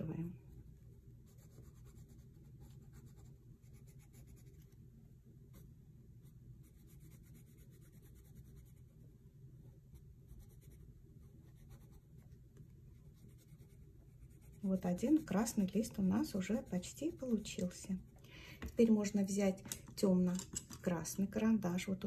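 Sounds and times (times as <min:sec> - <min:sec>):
low steady hum: 0:00.0 - 0:22.0
pencil scratching on paper: 0:00.5 - 0:04.8, 0:05.5 - 0:08.9, 0:09.9 - 0:18.1.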